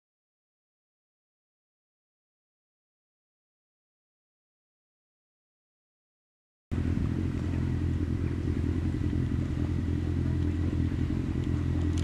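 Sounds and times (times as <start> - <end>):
steady low drone: 6.7 - 12.0.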